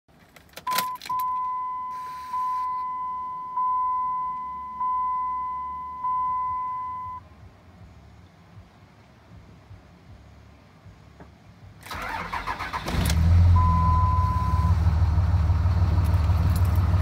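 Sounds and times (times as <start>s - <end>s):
dashboard warning chime: 0.7s - 7.2s, 13.6s - 14.7s.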